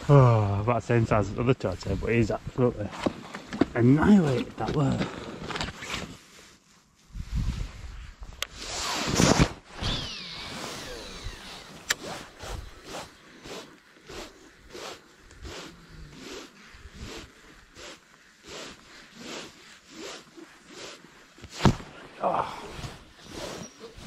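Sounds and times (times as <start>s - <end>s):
fishing reel whirring: 9.8s - 15.7s.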